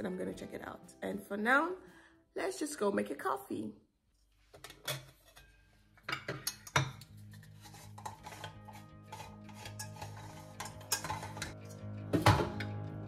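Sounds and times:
soft background music: 0.0s - 3.8s, 4.8s - 13.0s
metal clinks of moka pot: 6.1s - 7.0s, 9.7s - 11.5s.

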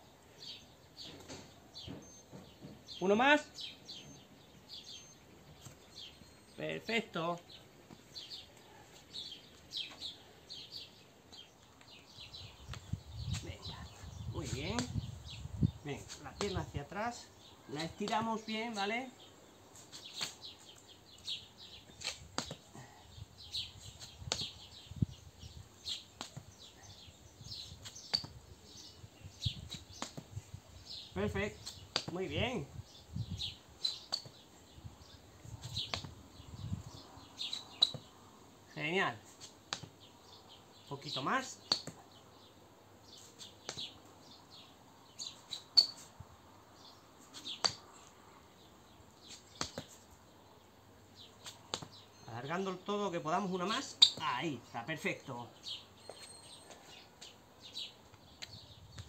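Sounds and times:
small birds chirping: 0.0s - 59.0s
shoes tapping on stone paving: 17.8s - 18.3s, 19.8s - 22.9s, 24.0s - 24.8s, 25.8s - 26.6s, 27.8s - 28.4s, 29.5s - 30.4s, 31.5s - 32.2s, 33.8s - 34.5s, 35.6s - 36.3s, 37.4s - 38.1s, 39.3s - 40.1s, 41.6s - 42.1s, 43.4s - 44.0s, 47.3s - 47.9s, 49.2s - 50.1s, 51.4s - 52.0s, 53.9s - 54.3s.

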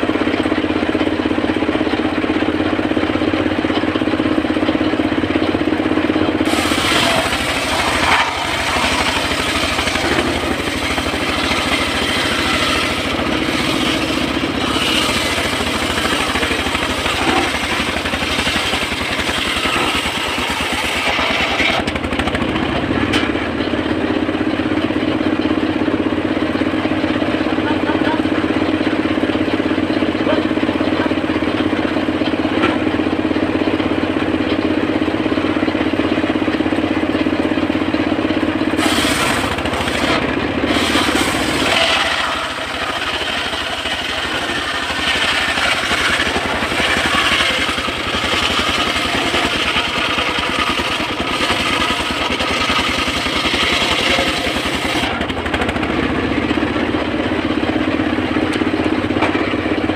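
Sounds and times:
sawmill engine humming: 0.0s - 59.9s
saw blade cutting log: 6.4s - 22.3s, 38.7s - 59.5s.

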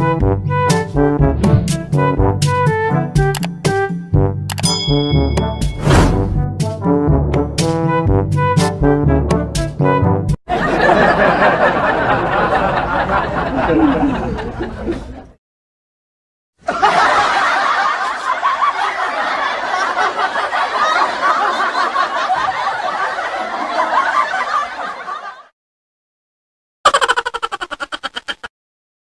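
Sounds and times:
crowd laughing: 10.5s - 15.4s, 16.6s - 25.5s, 26.9s - 28.5s.

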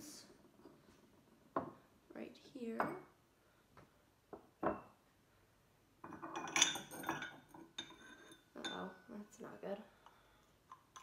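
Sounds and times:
ceramic pots clinking together: 6.0s - 9.0s
ceramic ringing tones: 6.1s - 9.1s.

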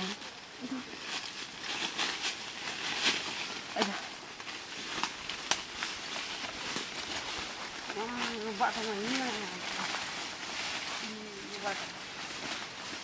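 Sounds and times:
leaves and twigs rustling: 0.0s - 13.0s
branches snapping: 1.0s - 13.0s.

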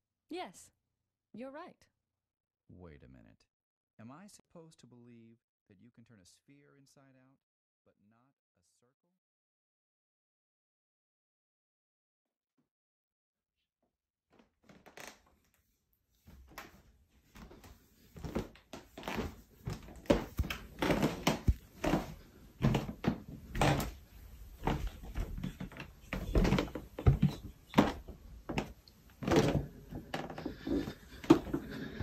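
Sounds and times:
irregular knocks and thumps: 24.6s - 32.0s.

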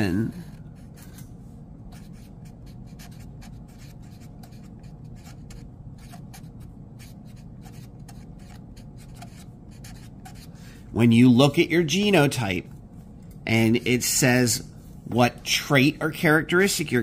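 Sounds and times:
marker pen writing on paper: 0.3s - 10.6s.

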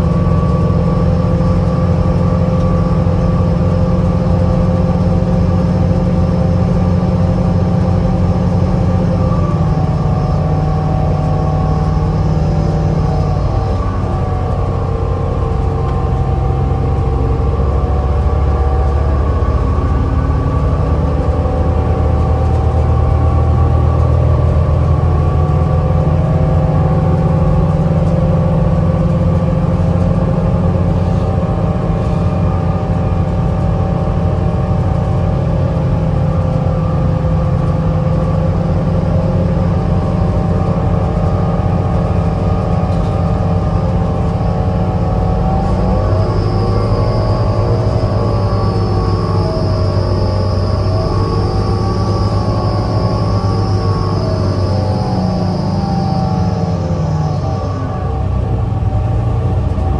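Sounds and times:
bus low rumble: 0.0s - 59.9s
steady tones: 39.6s - 59.9s.

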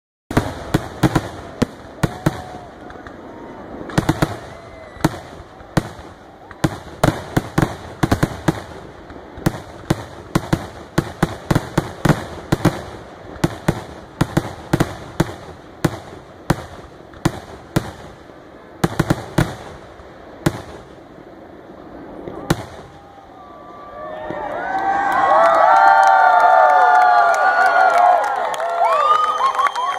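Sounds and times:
fireworks bursting with sharp bangs: 0.3s - 23.6s.

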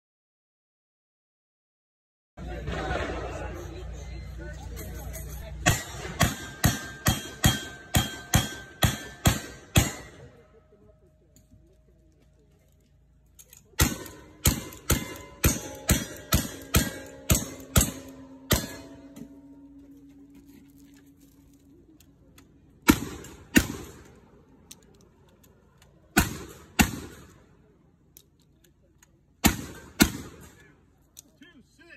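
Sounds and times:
metal targets ringing: 4.2s - 10.6s, 13.7s - 21.5s
gunshots: 5.6s - 10.3s, 13.8s - 19.2s, 22.8s - 24.2s, 26.1s - 27.5s, 29.4s - 30.6s.

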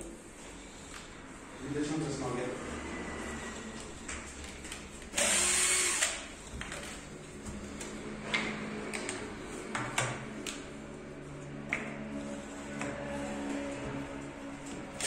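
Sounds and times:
cordless drill driving screw: 5.1s - 6.3s.

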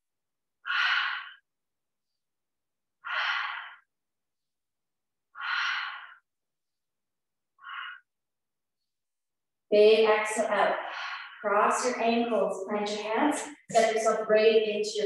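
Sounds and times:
woman breathing: 0.6s - 2.3s, 2.9s - 4.6s, 5.3s - 9.0s, 10.6s - 12.0s.

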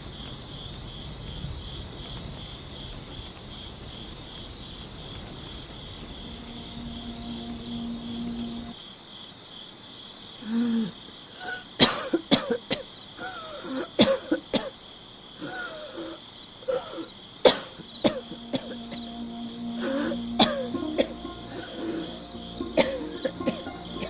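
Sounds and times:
crickets chirping: 0.0s - 24.0s
woman coughing harshly: 11.4s - 14.8s, 16.7s - 18.9s, 20.4s - 21.1s, 22.8s - 23.7s.

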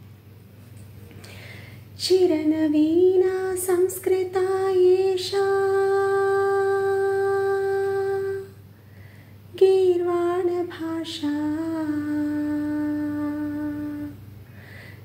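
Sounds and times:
woman singing solo: 2.0s - 8.6s.

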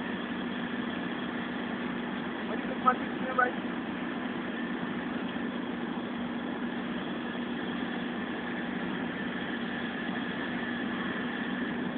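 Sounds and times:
heavy machinery humming: 0.0s - 11.9s.

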